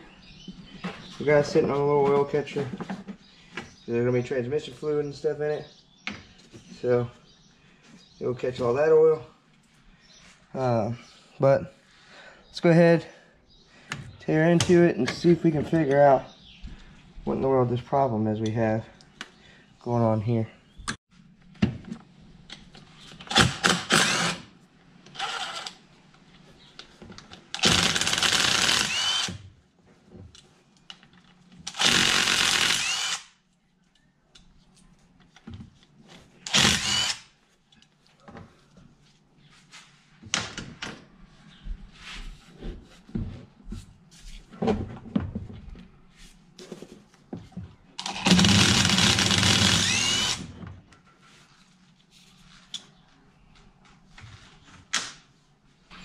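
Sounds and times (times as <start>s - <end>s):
cordless drill whining: 23.3s - 24.4s, 25.1s - 25.8s, 27.6s - 29.4s, 31.7s - 33.4s, 36.5s - 37.2s, 48.0s - 50.5s.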